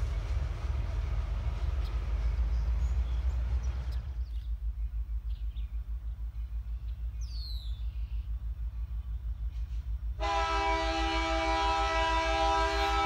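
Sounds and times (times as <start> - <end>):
birds chirping: 0.0 - 10.2
low pulsing rumble: 0.0 - 10.2
freight train rolling past: 0.0 - 13.0.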